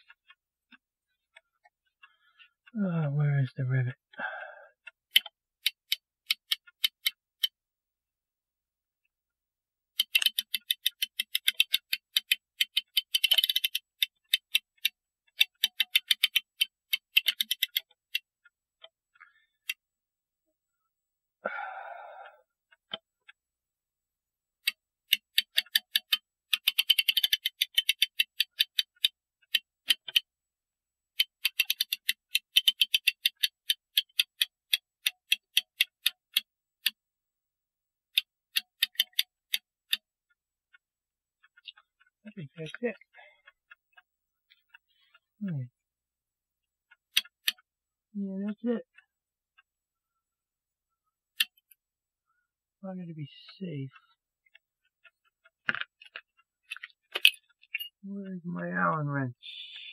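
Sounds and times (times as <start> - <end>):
ratchet clicking: 10.0 - 17.8, 24.6 - 29.1, 31.2 - 36.4.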